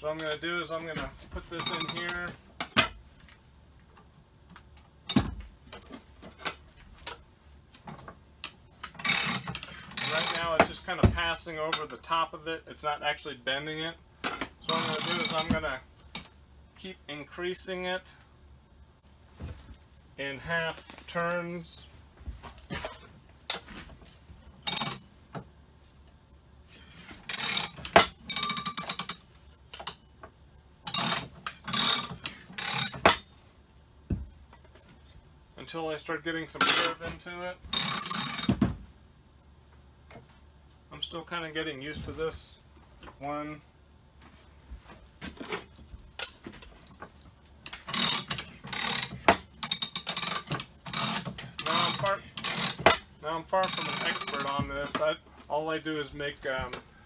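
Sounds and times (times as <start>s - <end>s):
ratchet clicking and rattling: 8.7s - 10.6s, 14.6s - 15.5s, 26.8s - 30.1s, 30.9s - 33.3s, 37.7s - 38.5s, 46.0s - 54.7s.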